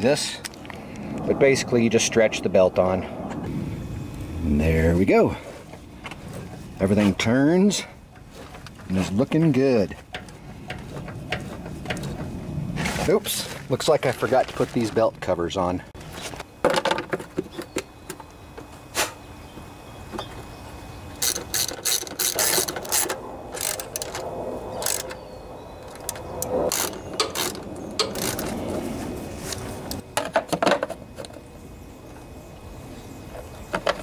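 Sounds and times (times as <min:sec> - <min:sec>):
socket ratchet clicking: 0:21.2 - 0:24.2, 0:26.7 - 0:28.5.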